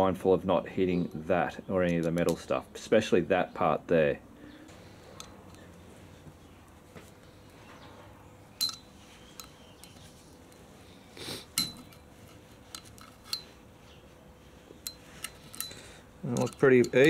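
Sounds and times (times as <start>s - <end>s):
metal clinks of screwdriver: 12.7s - 13.6s, 14.8s - 17.0s.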